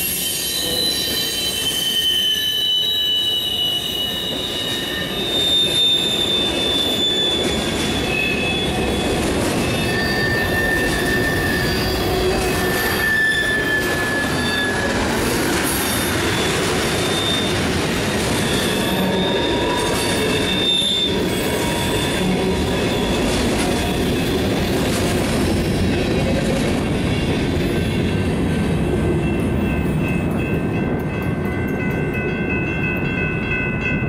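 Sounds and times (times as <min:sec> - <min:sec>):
wheel squeal: 0:00.0 - 0:17.7, 0:18.3 - 0:24.7
crossing bell ringing: 0:00.0 - 0:24.6, 0:26.9 - 0:34.0
freight train rumbling and clattering: 0:04.2 - 0:34.0.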